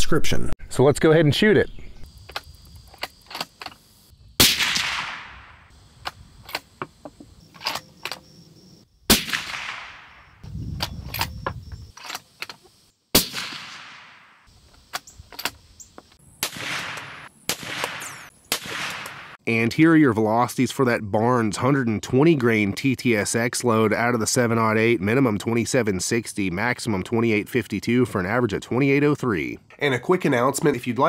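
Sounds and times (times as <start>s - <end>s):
suppressed rifle shots with echo: 4.4s - 5.7s, 9.1s - 10.4s, 13.2s - 14.5s, 16.4s - 19.4s.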